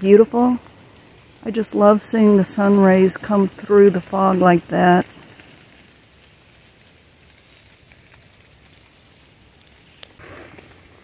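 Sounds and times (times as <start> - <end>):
faint hiss: 0.0 - 11.0.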